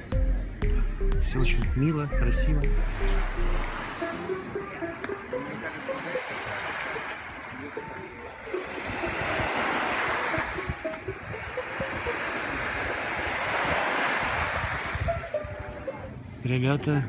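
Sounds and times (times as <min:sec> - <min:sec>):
waves breaking on beach: 0:02.9 - 0:17.0
wind buffeting microphone: 0:06.5 - 0:17.0.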